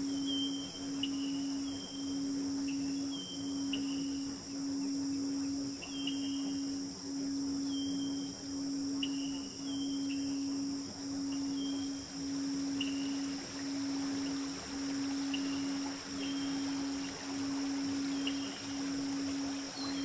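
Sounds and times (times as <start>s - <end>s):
cricket chirps: 0.0s - 20.0s
crickets trilling: 0.0s - 20.0s
steady low tone: 0.0s - 20.0s.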